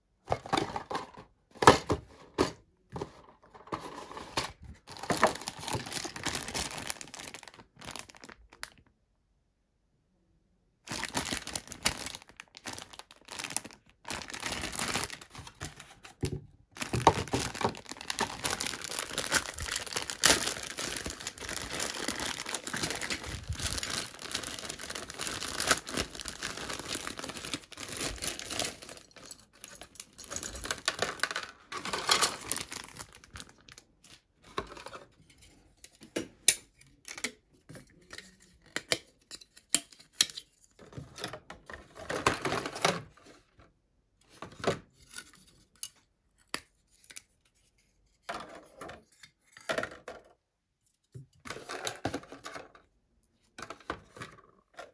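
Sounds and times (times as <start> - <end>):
plastic parts clicking and rustling: 0.2 - 8.8, 10.9 - 43.6, 51.0 - 52.9
plastic bag crinkling and tearing: 3.9 - 8.8, 10.9 - 16.0, 16.7 - 34.2.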